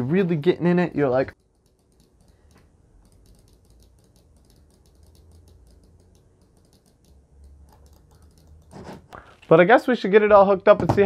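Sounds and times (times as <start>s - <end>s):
mouse buttons clicking: 1.3s - 8.7s.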